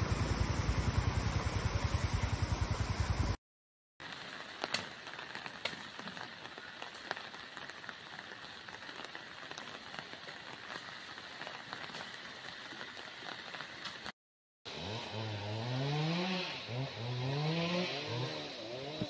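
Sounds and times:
steady rain falling: 4.0 - 14.2.

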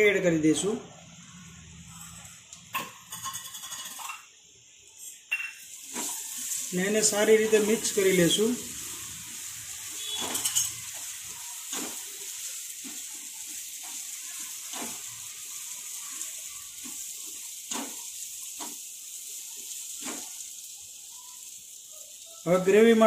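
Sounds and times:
chickpeas sizzling in a pan: 0.0 - 23.0
spatula scraping a pan: 5.0 - 6.7, 9.9 - 20.4.

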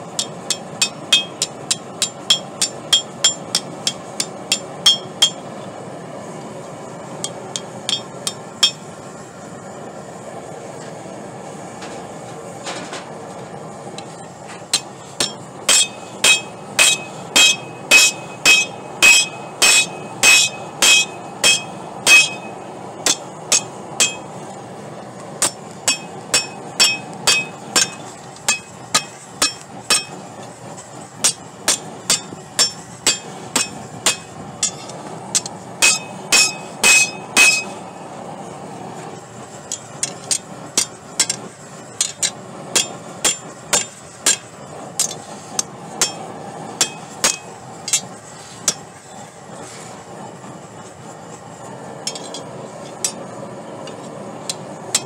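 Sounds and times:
steady rushing noise: 0.0 - 55.0
hammer striking steel on anvil: 0.1 - 5.6, 7.2 - 8.9, 14.7 - 24.3, 25.4 - 30.2, 31.2 - 37.9, 39.7 - 48.9, 52.1 - 53.2, 53.9 - 55.0.

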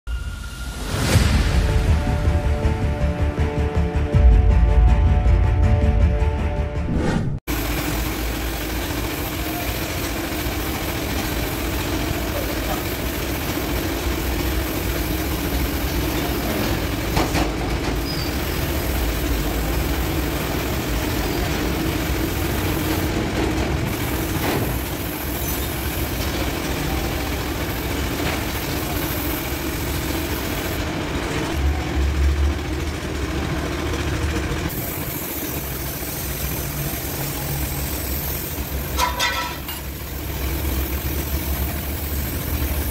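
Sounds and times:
paint spray gun air hiss: 7.5 - 17.2, 18.0 - 23.1, 23.9 - 26.7, 27.4 - 30.8, 34.7 - 39.0, 39.8 - 42.9.

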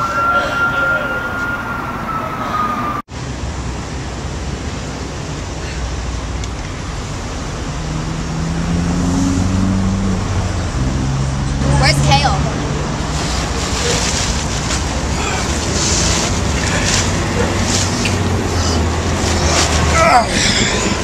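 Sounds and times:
distant siren wailing: 0.0 - 3.1
roadway traffic noise: 0.0 - 21.0.

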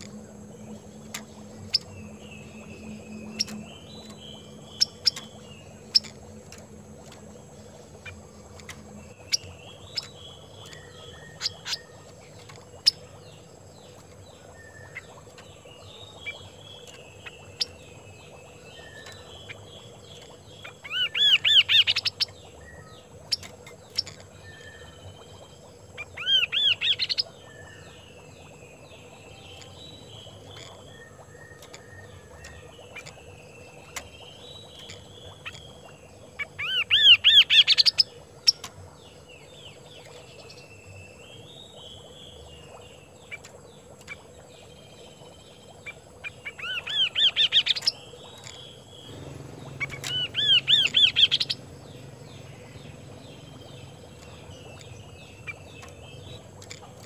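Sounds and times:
bird whistled song: 9.2 - 12.0, 14.5 - 15.1, 20.8 - 25.3, 26.1 - 28.0, 36.6 - 38.6, 46.5 - 56.4
soft bird warbling: 45.9 - 56.0.

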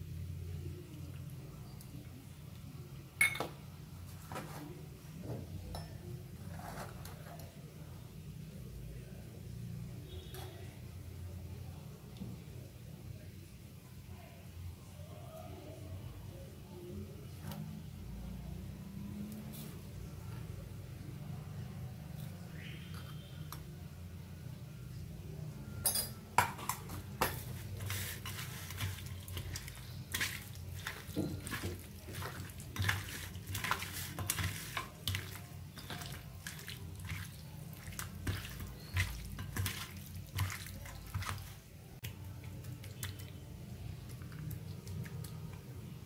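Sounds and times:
wet squelches of hand mixing: 26.9 - 46.0.

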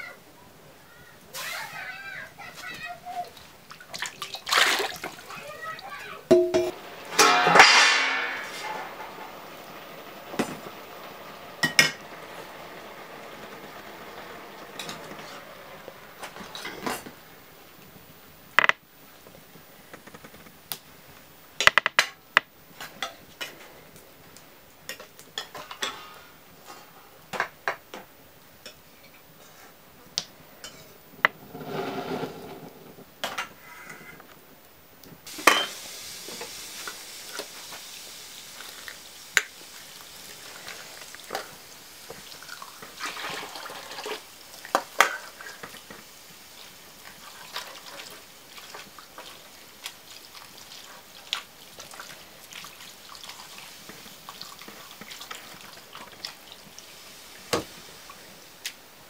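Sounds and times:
metal ladle clinking on wok: 6.3 - 9.2.

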